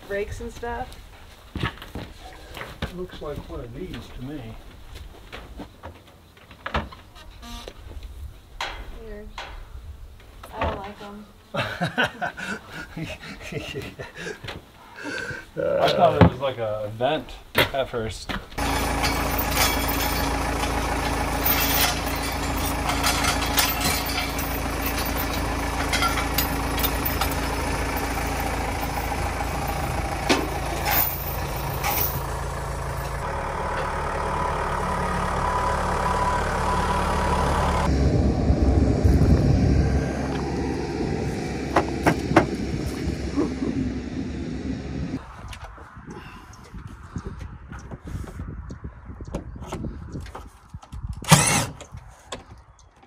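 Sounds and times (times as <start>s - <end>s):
metallic clanks: 18.6s - 33.9s
diesel engine running: 18.6s - 45.3s.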